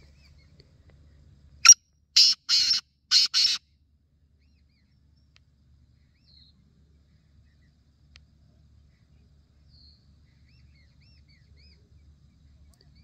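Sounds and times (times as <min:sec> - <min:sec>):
francolin grating call: 0:01.6 - 0:03.6.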